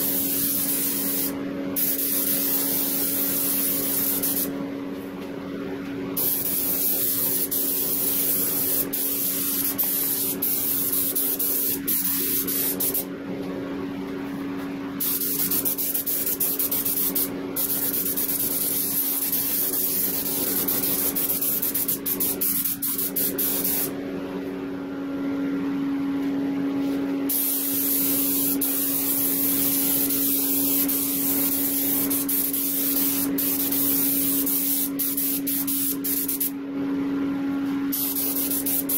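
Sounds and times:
paint spray hissing: 0.0 - 4.5, 6.2 - 13.1, 15.0 - 23.9, 27.3 - 36.5, 37.9 - 38.9
steady low hum: 0.0 - 38.9.

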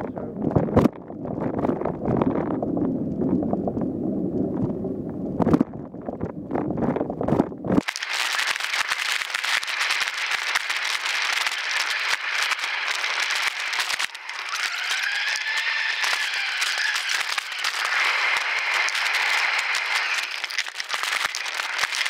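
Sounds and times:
wind rumble on microphone: 0.0 - 7.9
bike tyres crackling and rattling: 0.5 - 22.0.

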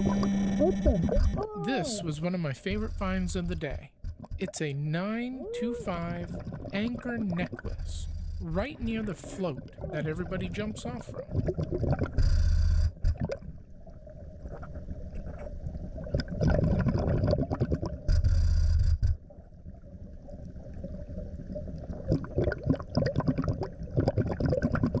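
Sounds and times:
gurgling exhaled bubbles: 5.1 - 18.7, 21.0 - 25.0
underwater rumble: 5.1 - 25.0.

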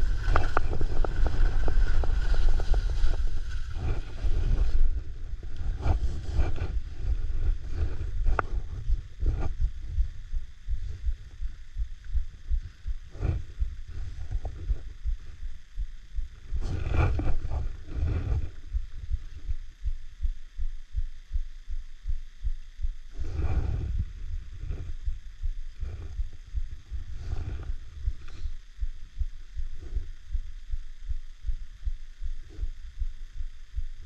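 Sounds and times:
skis scraping over snow: 0.0 - 8.4
wind rumble on microphone: 0.0 - 21.1, 23.1 - 34.0.

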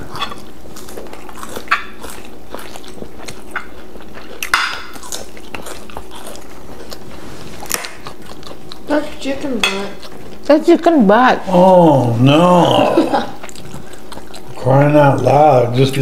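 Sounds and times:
chewing: 0.0 - 11.2, 12.6 - 16.0
steady low hum: 0.0 - 16.0
cutlery clinking on plates: 0.1 - 0.4, 4.4 - 5.0, 9.6 - 10.0.

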